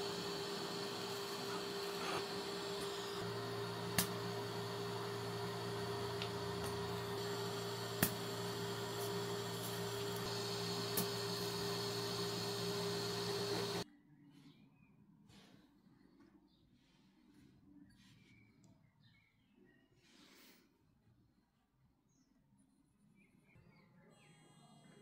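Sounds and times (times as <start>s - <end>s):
steady machine hum: 0.0s - 13.8s.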